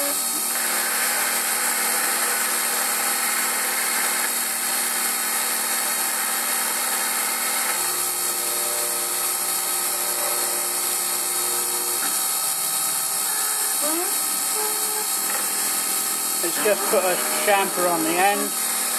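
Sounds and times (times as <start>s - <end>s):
lathe cutting metal: 0.0s - 18.9s
machine drive whine: 7.1s - 18.9s.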